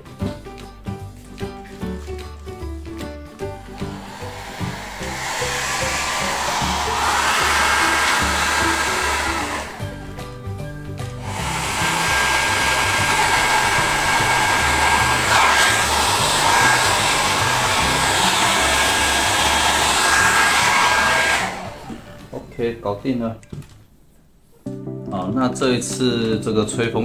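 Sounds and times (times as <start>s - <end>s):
hair dryer running: 3.4s - 22.4s.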